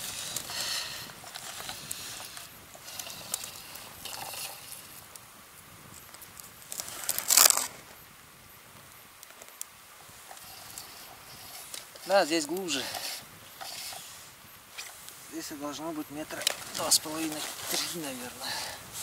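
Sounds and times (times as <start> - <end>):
plastic rustling: 6.2 - 7.9, 16.2 - 19.0.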